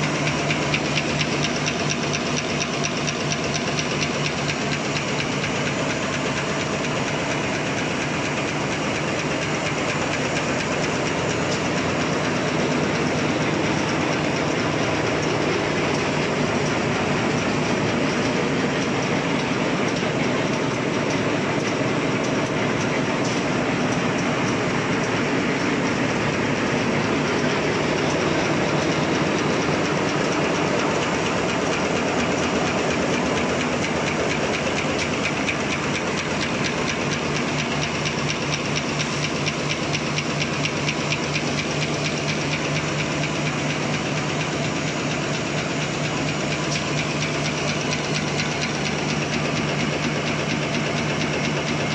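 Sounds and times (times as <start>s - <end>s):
machine clattering fast: 0.0s - 51.9s.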